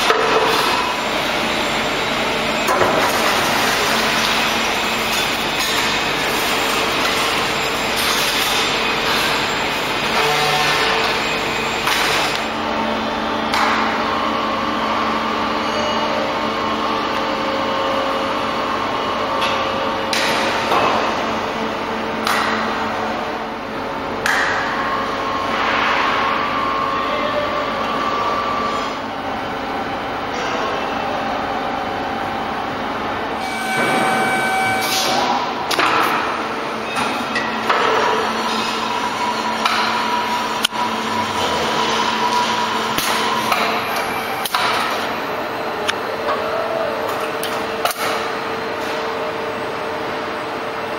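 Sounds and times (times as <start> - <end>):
machinery hum: 0.0 - 50.9
steady machine tones: 32.0 - 35.7.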